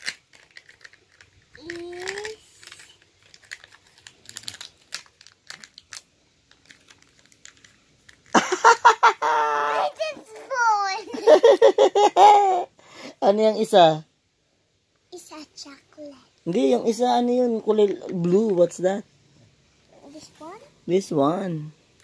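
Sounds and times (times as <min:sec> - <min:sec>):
plastic capsule clicks and crinkles: 0:00.0 - 0:08.4
child vocal sound: 0:01.6 - 0:02.6, 0:09.4 - 0:11.2
child's voice: 0:01.6 - 0:03.0, 0:09.7 - 0:11.3, 0:15.1 - 0:16.4, 0:19.9 - 0:20.8.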